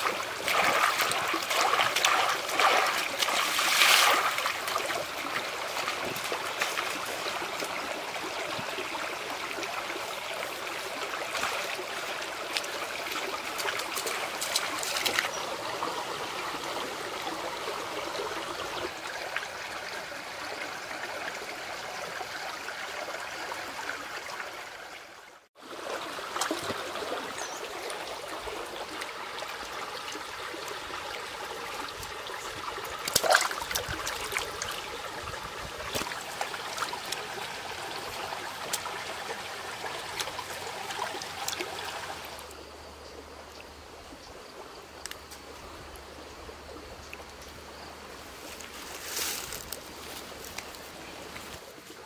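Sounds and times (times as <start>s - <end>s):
sharp water splashes: 0.0s - 7.3s, 12.5s - 15.4s, 32.8s - 35.0s, 35.8s - 42.4s
stream trickling over pebbles: 0.0s - 52.0s.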